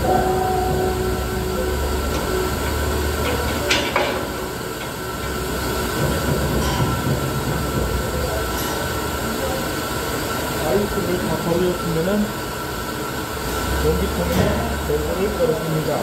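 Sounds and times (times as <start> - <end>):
gas filling rumble and hiss: 0.0 - 16.0.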